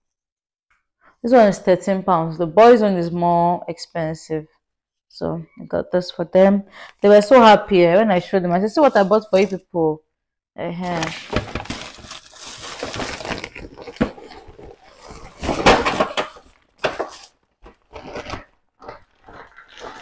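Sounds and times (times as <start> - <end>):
plastic bag rustling: 10.8 - 20.0.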